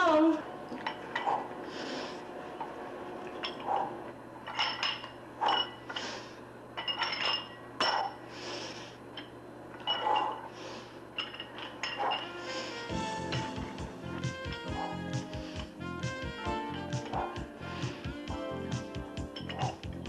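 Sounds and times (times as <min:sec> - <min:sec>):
metal weights clanking: 0:19.4 - 0:19.8.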